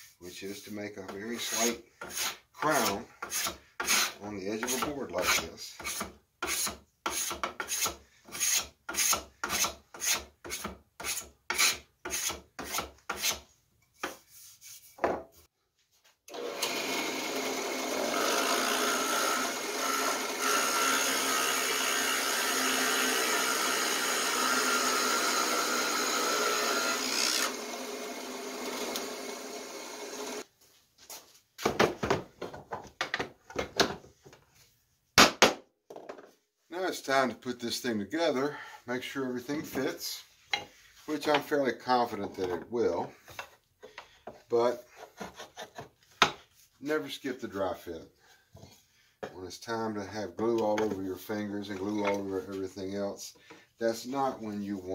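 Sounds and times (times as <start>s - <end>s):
spokeshave cutting wood: 1.0s - 13.4s, 16.3s - 30.4s
drill press drilling: 16.3s - 30.4s.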